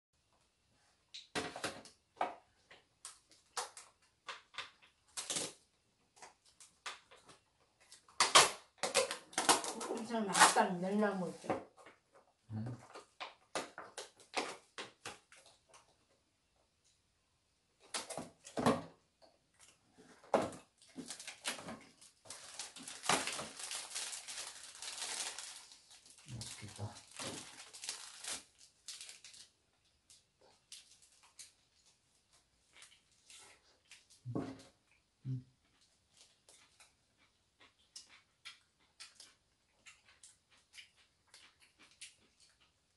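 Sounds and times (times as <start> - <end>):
plastic wrapper crinkling: 7.9 - 10.8, 20.8 - 31.9.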